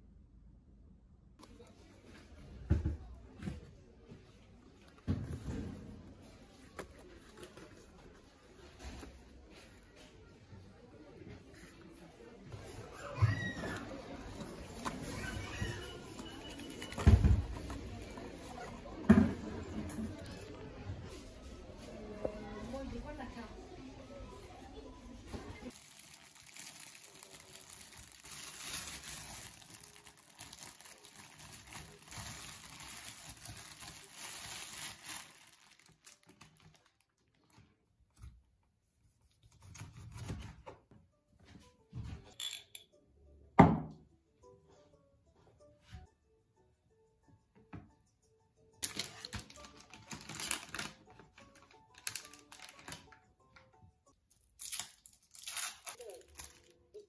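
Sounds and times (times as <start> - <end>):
plastic bag rustling: 25.7 - 37.7, 48.8 - 53.1, 54.6 - 56.8
plastic packaging crinkling: 25.7 - 37.7, 48.8 - 53.2, 54.3 - 56.8
soft background music: 39.0 - 57.0.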